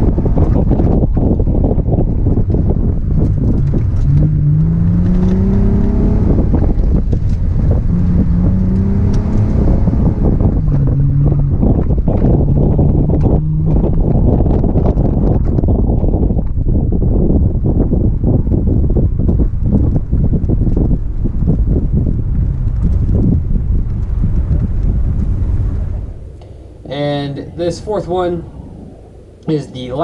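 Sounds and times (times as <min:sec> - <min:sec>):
car engine accelerating: 0:00.0 - 0:30.0
wind buffeting microphone: 0:00.0 - 0:30.0.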